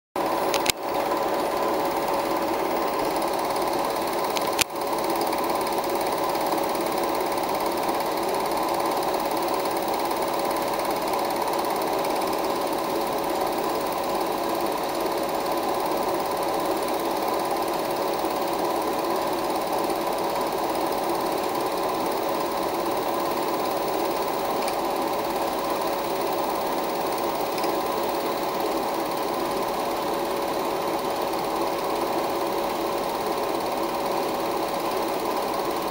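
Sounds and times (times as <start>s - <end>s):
film projector running: 0.2s - 35.9s
projector click: 0.4s - 1.0s, 4.2s - 4.8s, 24.5s - 24.9s, 27.4s - 27.9s.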